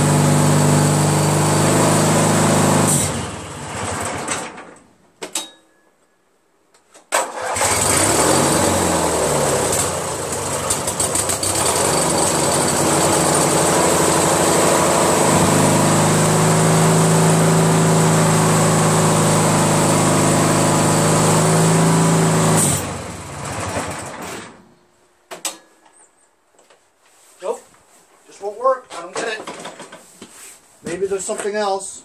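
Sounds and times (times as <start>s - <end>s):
lawn tractor engine running: 0.0s - 4.6s, 7.2s - 24.5s.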